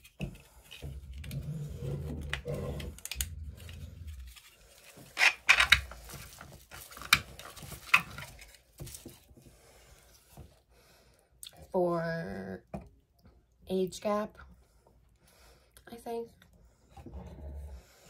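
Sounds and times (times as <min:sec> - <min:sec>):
packaging rubbing rustle: 0:00.5 - 0:09.4
packaging crinkles and clicks: 0:02.2 - 0:09.1.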